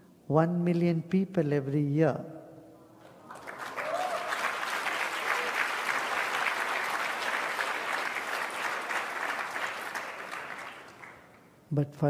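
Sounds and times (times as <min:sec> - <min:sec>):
audience applauding: 0:03.1 - 0:11.5.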